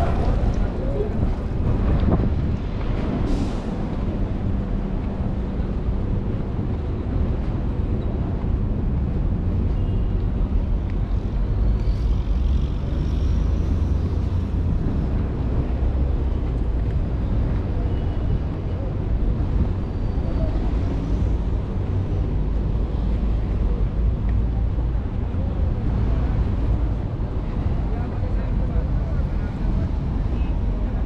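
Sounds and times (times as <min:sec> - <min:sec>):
wind buffeting microphone: 0:00.0 - 0:09.1
distant traffic rumble: 0:00.0 - 0:31.0.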